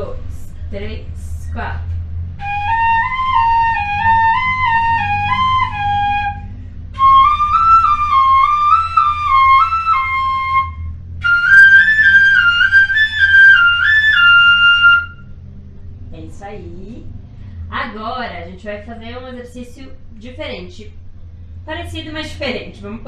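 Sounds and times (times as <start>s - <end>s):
breaths: 6.5s - 6.9s, 17.2s - 17.7s.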